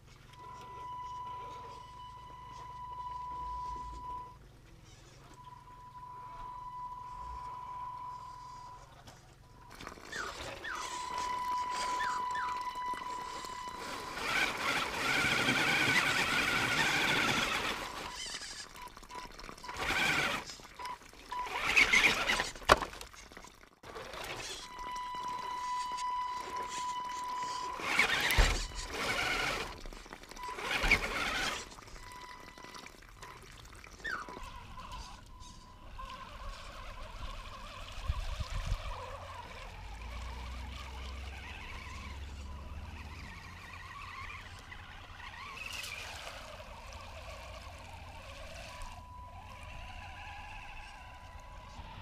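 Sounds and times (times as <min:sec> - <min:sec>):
tyres churning through mud: 0:07.1 - 0:52.0
electric motor whine: 0:09.6 - 0:18.6, 0:23.9 - 0:32.8, 0:34.2 - 0:52.0.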